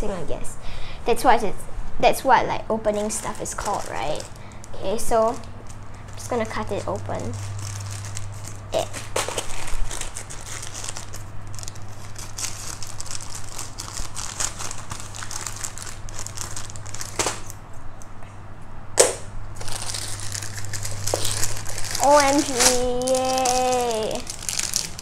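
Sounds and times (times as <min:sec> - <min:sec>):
plastic mailer bag crinkling: 0:03.0 - 0:17.6, 0:19.6 - 0:25.0
scissors cutting plastic: 0:06.2 - 0:11.2, 0:19.9 - 0:25.0.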